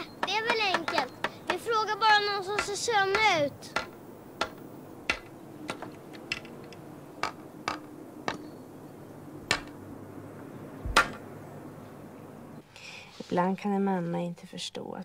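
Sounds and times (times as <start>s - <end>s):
hammer knocking nails into wood: 2.6s - 6.5s.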